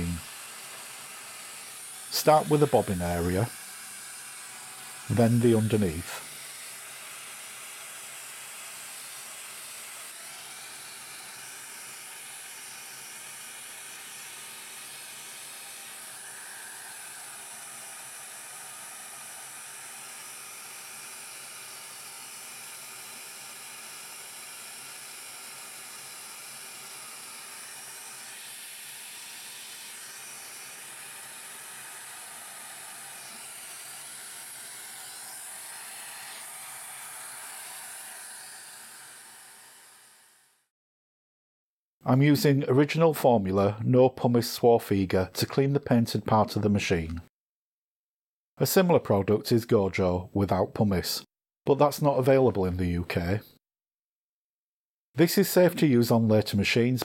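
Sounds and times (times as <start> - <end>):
vacuum cleaner running: 0.0 - 40.6.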